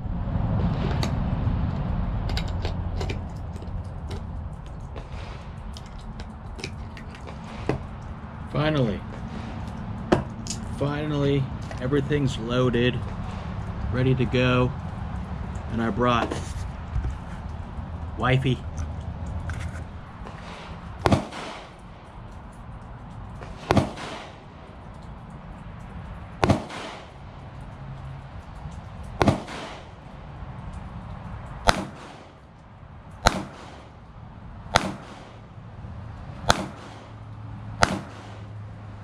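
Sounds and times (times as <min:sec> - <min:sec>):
gunshots with short echo: 0:21.0 - 0:21.8, 0:23.6 - 0:24.4, 0:26.4 - 0:27.1, 0:29.2 - 0:29.9, 0:33.2 - 0:33.8, 0:34.7 - 0:35.4, 0:36.4 - 0:37.2, 0:37.8 - 0:38.5.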